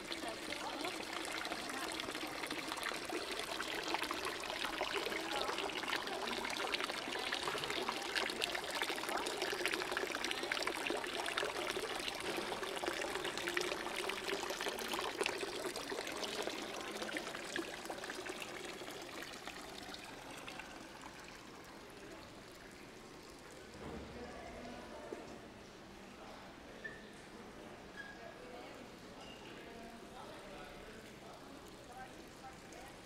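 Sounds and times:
water pouring and splashing: 0.0 - 24.7.

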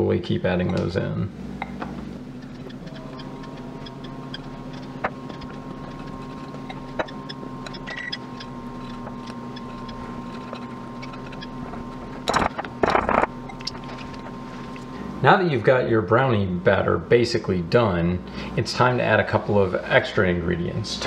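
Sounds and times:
steady background hum: 0.0 - 21.0
whisk stirring batter in glass bowl: 2.4 - 12.2.

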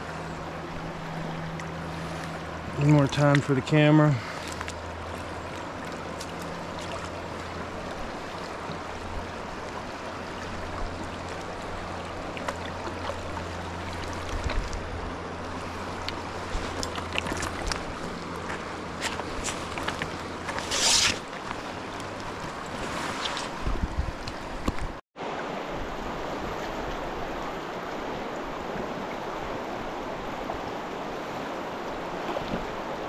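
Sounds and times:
small water splashes: 1.0 - 23.6.

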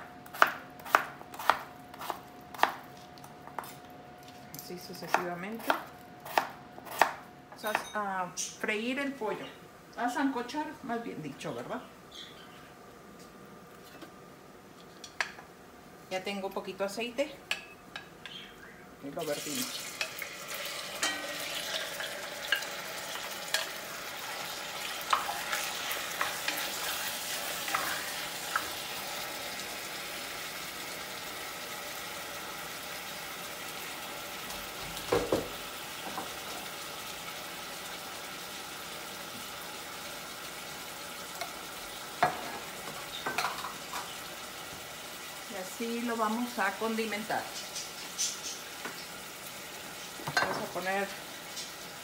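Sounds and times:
chicken sizzling in oil: 19.2 - 52.0.

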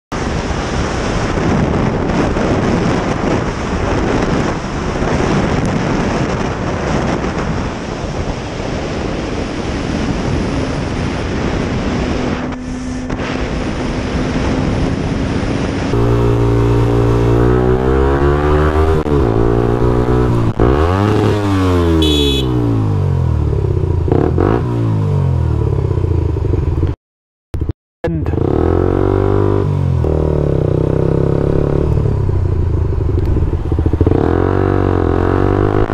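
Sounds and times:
wind rush on helmet camera: 0.2 - 27.0, 28.3 - 35.9
motorcycle engine: 10.3 - 27.0, 27.6 - 35.9.

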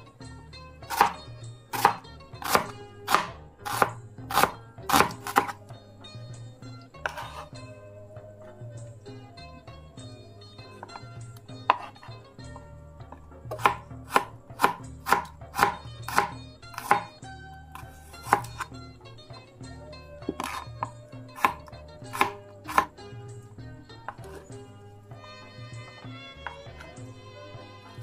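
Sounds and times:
knife chopping on cutting board: 0.8 - 5.6, 7.0 - 7.6, 10.8 - 12.1, 13.1 - 18.7, 20.2 - 23.0.

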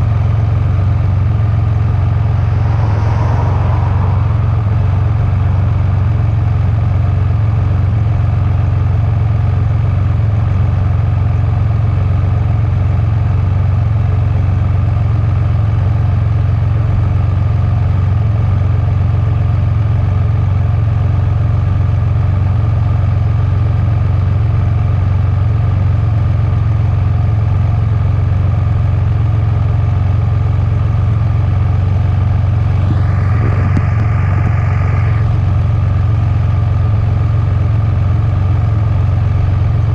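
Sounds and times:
engine idling: 31.6 - 39.9.

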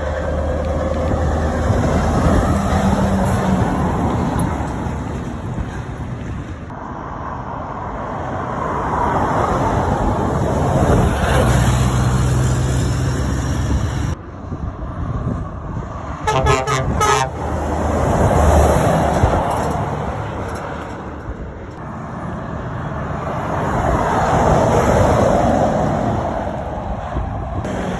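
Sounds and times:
diesel lorries driving past: 0.0 - 27.9
truck air horn toots: 16.2 - 17.6.

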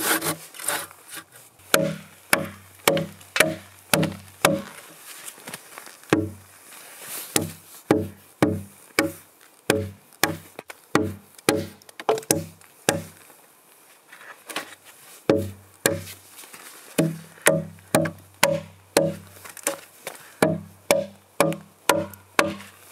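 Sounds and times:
axe chopping log: 1.7 - 4.8, 6.1 - 6.4, 7.4 - 13.2, 15.3 - 16.1, 17.0 - 19.8, 20.4 - 22.7.

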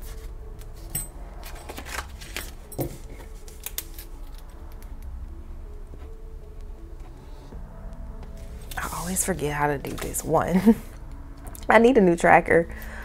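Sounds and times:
banknotes rustling: 0.0 - 4.8.

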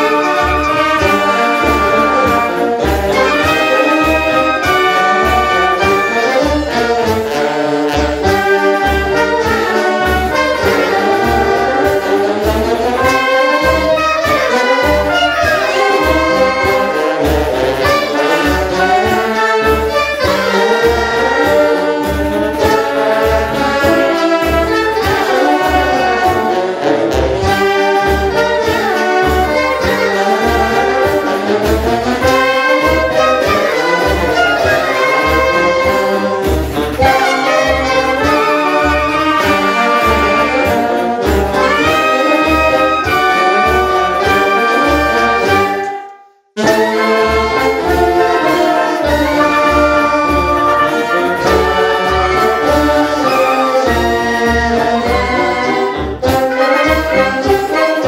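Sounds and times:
snare drum: 0.0 - 58.0
tuba: 0.0 - 58.0
wind band playing a march: 0.0 - 58.0.

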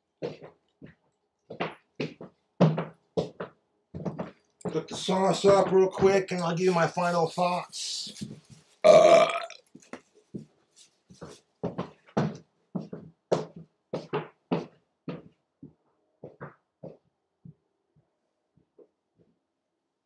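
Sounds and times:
man burping: 8.8 - 9.6.

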